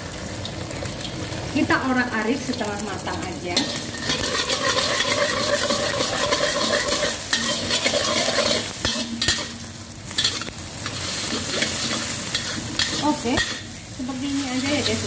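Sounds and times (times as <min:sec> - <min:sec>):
eggs sizzling in hot oil: 0:00.0 - 0:15.0
metal spatula scraping wok: 0:03.5 - 0:15.0.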